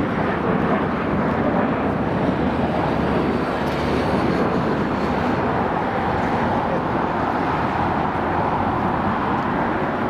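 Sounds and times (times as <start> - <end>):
jet engines rushing: 0.0 - 10.0.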